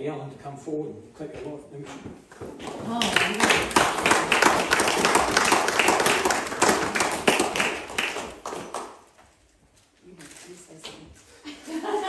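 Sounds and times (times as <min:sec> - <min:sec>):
audience clapping: 0:02.5 - 0:09.1.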